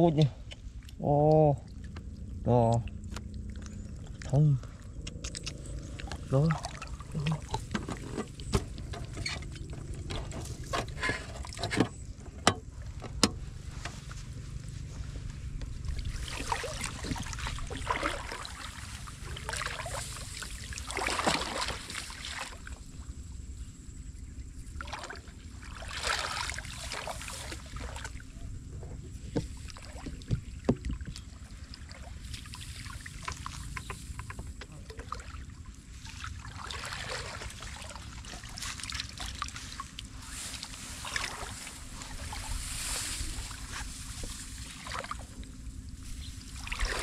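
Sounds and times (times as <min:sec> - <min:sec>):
muddy water splashing: 0:00.0 - 0:23.4, 0:24.2 - 0:47.0
sharp clicks: 0:05.0 - 0:06.1.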